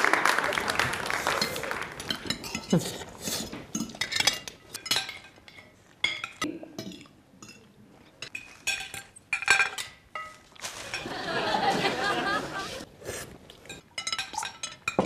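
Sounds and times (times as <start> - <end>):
cutlery clinking on plates: 1.4 - 11.2, 13.6 - 15.0.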